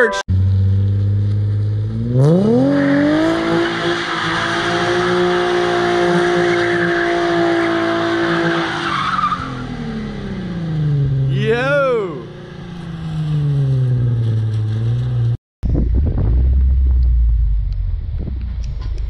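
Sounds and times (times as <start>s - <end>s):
car engine revving: 0.3s - 11.3s, 12.1s - 19.0s
tyres spinning on wet asphalt: 2.2s - 9.8s.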